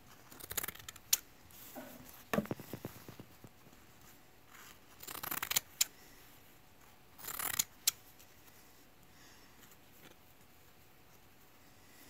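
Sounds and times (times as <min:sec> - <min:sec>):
scissors snipping cloth: 0:07.2 - 0:08.0.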